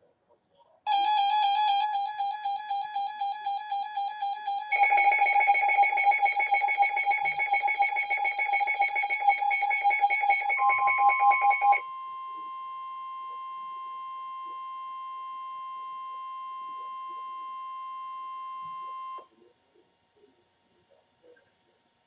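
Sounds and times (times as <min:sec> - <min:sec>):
faster higher beeping: 0:00.9 - 0:11.6
steady alarm tone: 0:00.9 - 0:19.2
weather radio alert beeps: 0:00.9 - 0:19.2.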